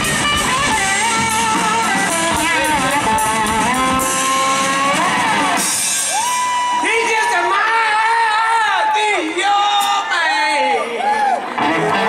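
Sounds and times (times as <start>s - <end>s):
electric guitar lead bending notes: 0.0s - 6.3s
live rock band playing: 0.0s - 10.2s.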